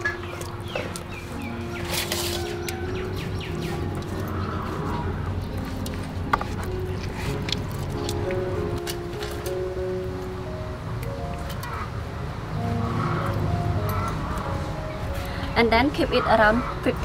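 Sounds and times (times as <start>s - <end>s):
birds chirping: 0.0s - 5.8s
soft background music: 0.0s - 17.0s.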